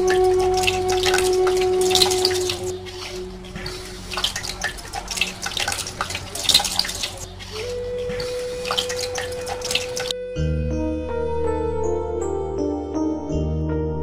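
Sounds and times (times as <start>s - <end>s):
water running into sink: 0.0s - 10.2s.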